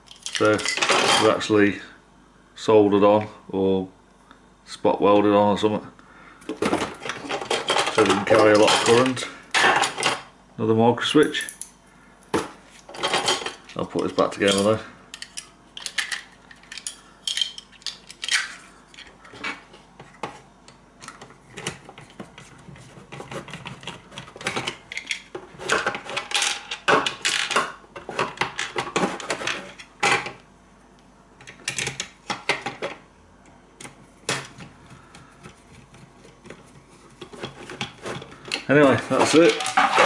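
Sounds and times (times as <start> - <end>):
plastic parts clicking and knocking: 21.0 - 30.4.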